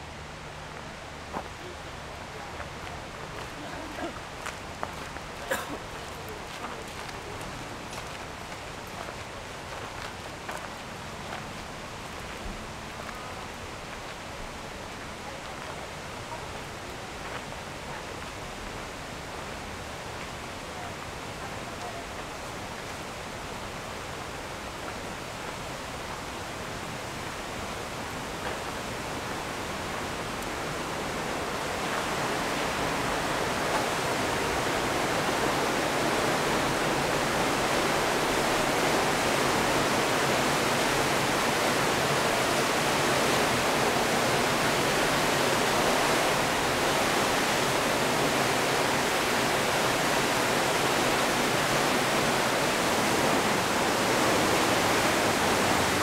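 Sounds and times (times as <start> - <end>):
waterfall rushing: 0.0 - 56.0.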